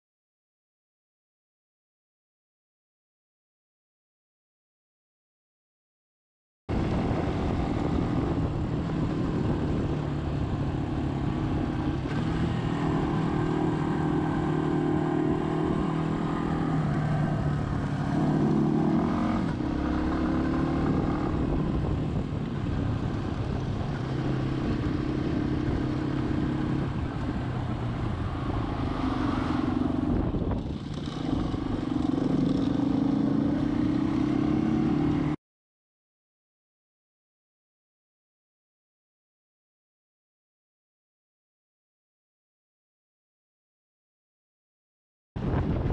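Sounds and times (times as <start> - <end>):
motorcycle engine running: 6.7 - 35.3
road noise rushing: 6.7 - 35.4.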